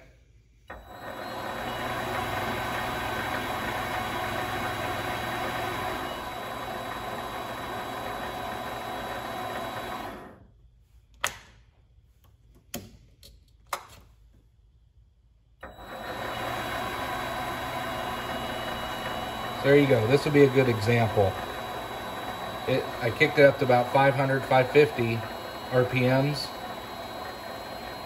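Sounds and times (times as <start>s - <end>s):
lathe motor humming: 0.7s - 10.4s, 15.6s - 28.0s.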